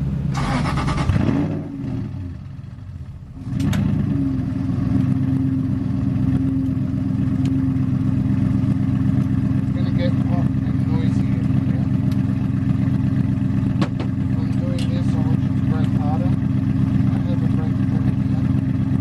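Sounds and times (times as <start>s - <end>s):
car engine idling: 0.0s - 19.0s
clatter: 11.4s - 19.0s.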